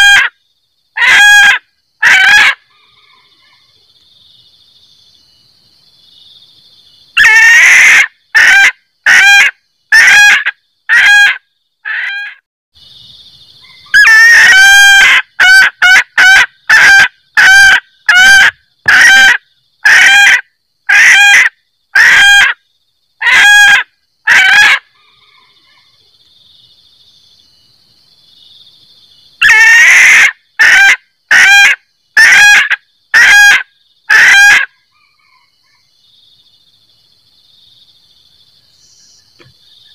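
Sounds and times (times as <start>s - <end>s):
hen cackling: 0.0s - 0.3s, 1.0s - 3.7s, 7.2s - 12.4s, 13.6s - 22.6s, 23.2s - 25.9s, 29.4s - 35.8s.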